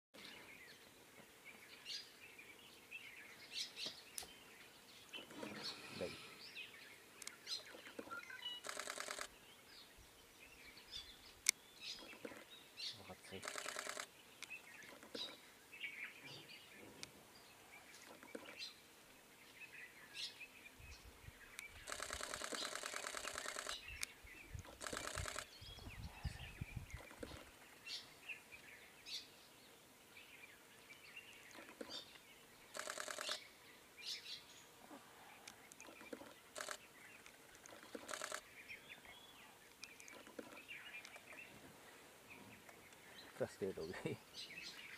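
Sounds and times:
birds chirping: 0.2 - 44.9
bird rattling chatter: 8.6 - 9.3, 13.4 - 14.1, 21.9 - 23.8, 24.7 - 25.5, 32.8 - 33.4, 35.8 - 36.8, 37.4 - 38.4.

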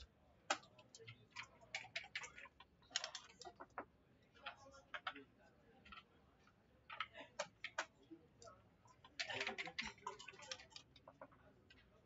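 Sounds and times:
game pieces and dice clicking: 0.5 - 3.8, 9.2 - 11.4.

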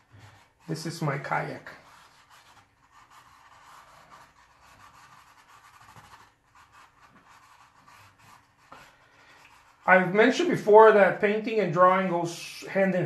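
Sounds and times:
paintbrush scratching on canvas: 0.0 - 10.3.

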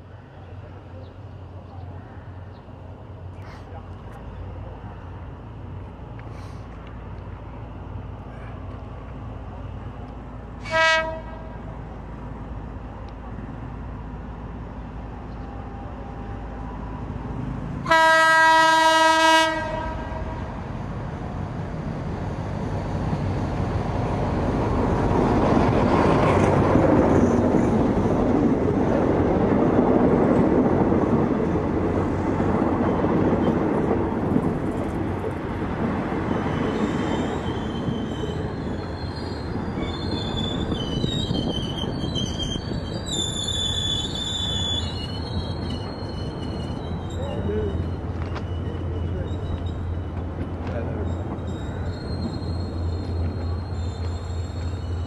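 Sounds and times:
train engine and wheels on rails: 0.0 - 55.0
locomotive horn blast: 10.6 - 11.6, 17.8 - 20.5
high squeal from running gear: 36.4 - 50.2, 51.0 - 55.0.

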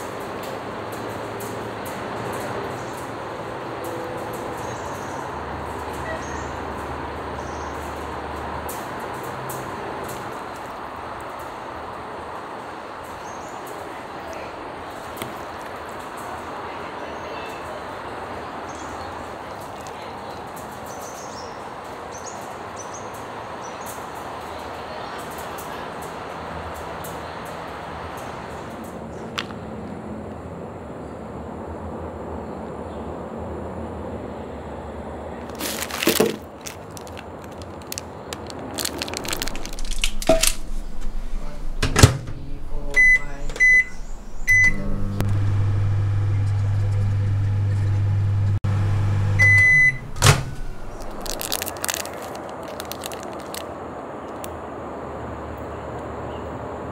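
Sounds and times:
outdoor background noise: 0.0 - 56.9
plastic pack crinkling: 35.4 - 41.3, 50.5 - 54.5
microwave humming: 39.1 - 51.6
microwave door shutting: 40.0 - 48.2, 48.8 - 51.0
keypad beeps: 42.9 - 44.9, 49.4 - 50.7
bird chirps: 43.0 - 44.8.

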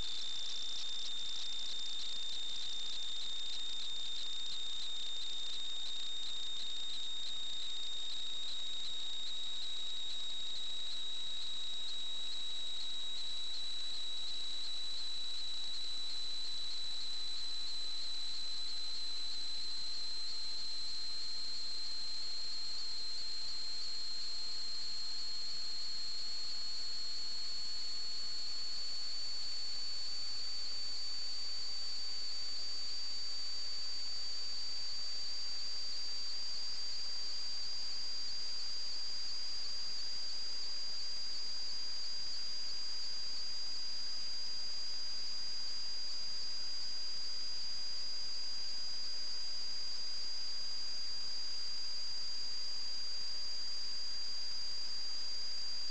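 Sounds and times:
high-pitched electronic whine: 0.0 - 55.9.

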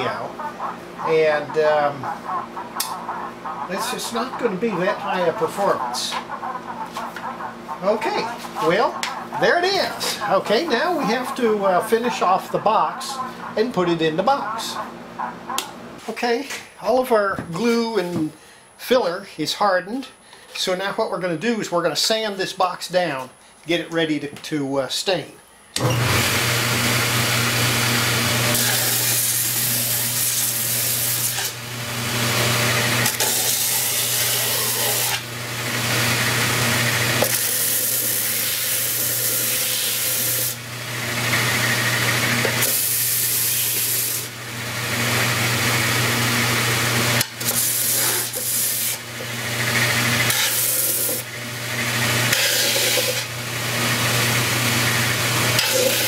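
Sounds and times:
belt sander motor hum: 25.8 - 56.0
wood sanding on belt: 33.1 - 35.2, 37.3 - 40.6, 47.4 - 49.0, 49.7 - 51.2, 52.3 - 53.3, 55.6 - 56.0.

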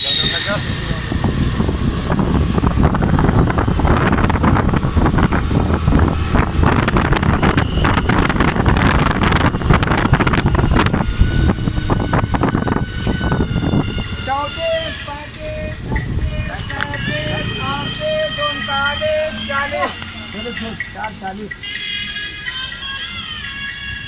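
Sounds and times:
steady pitched tone: 0.0 - 3.0
wind buffeting microphone: 0.0 - 21.6
road traffic and engine noise: 0.0 - 24.0.

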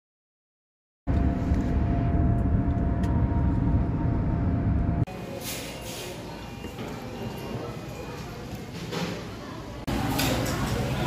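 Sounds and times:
vehicle road rumble: 1.1 - 5.1.

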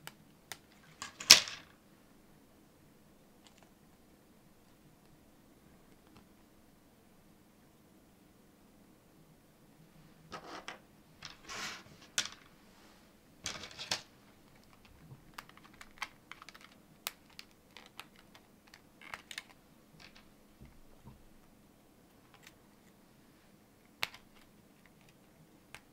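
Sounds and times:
plastic parts rattling: 0.7 - 1.7, 13.5 - 20.3.

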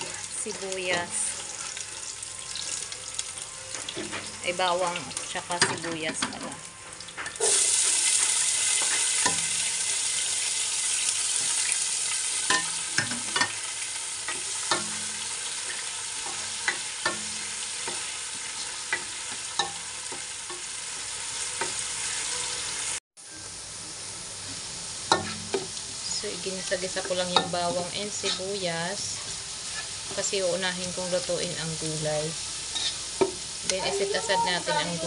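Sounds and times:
garlic and onion sizzling: 0.0 - 35.0
utensil scraping pan: 27.0 - 28.6, 32.7 - 33.1.

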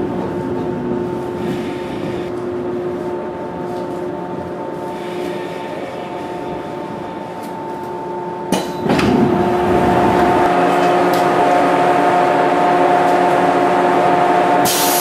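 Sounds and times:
electric train running hum: 0.0 - 15.0
hiss of air: 14.6 - 15.0.

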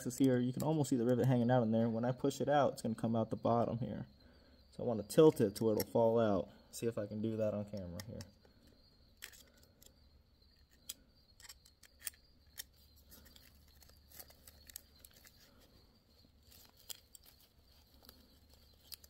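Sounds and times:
metal and plastic clicks and scrapes: 9.2 - 15.7, 16.4 - 19.0.

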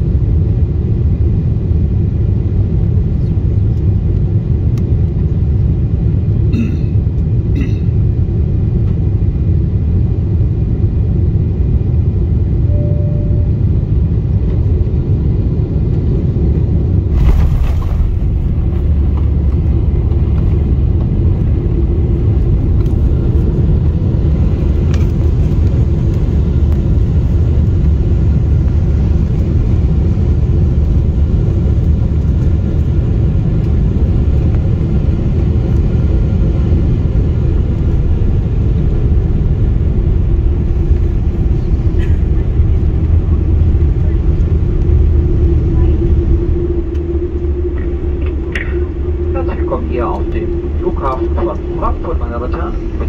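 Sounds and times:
airplane cabin rumble: 0.0 - 53.0.

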